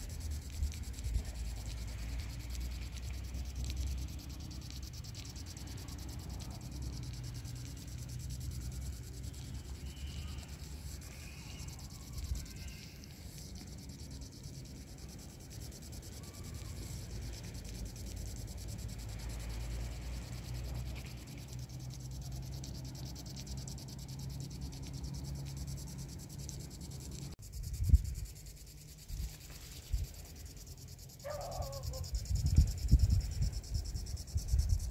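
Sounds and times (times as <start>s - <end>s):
faint high chirps: 9.1s - 13.7s
wind rumble on microphone: 27.4s - 28.4s, 31.8s - 34.9s.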